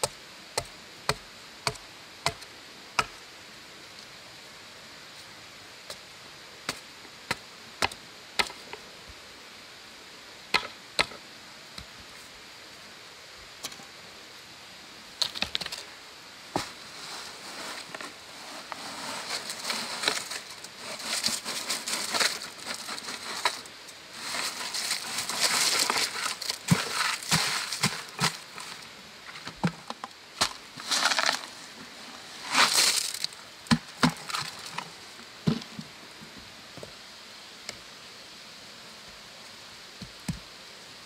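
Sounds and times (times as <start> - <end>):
gritty scraping: 16.5 - 35.7.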